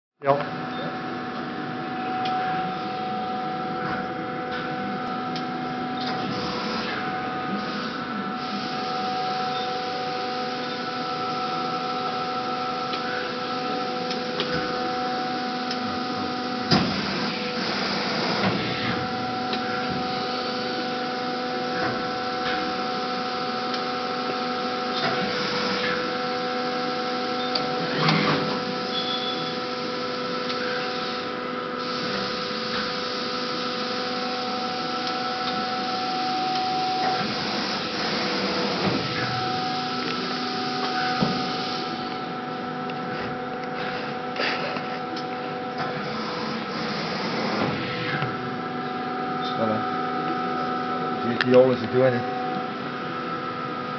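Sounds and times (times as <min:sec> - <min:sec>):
hydraulic press brake humming: 0:27.3 - 0:44.8.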